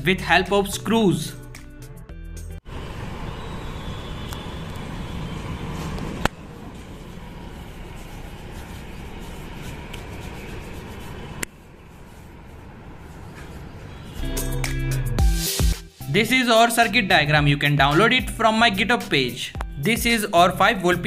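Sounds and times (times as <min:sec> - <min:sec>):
low urban rumble with hiss: 0:02.7 - 0:14.0.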